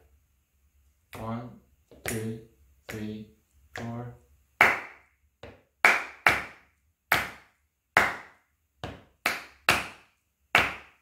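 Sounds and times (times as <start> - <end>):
hand claps: 4.6 - 11.0.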